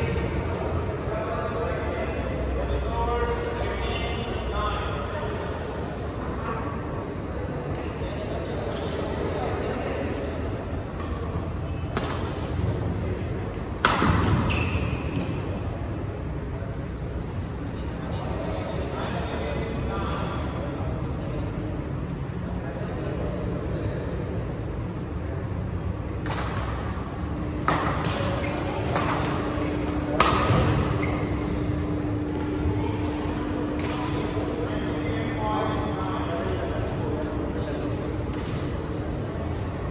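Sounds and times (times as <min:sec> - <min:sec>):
murmur of voices: 0:00.0 - 0:39.9
steady low hum: 0:00.0 - 0:39.9
rackets hitting shuttlecock: 0:11.9 - 0:12.6, 0:13.8 - 0:14.6, 0:26.2 - 0:27.0, 0:27.6 - 0:34.4
racket striking shuttlecock: 0:27.6 - 0:29.4
shoes squeaking on court: 0:30.8 - 0:32.6.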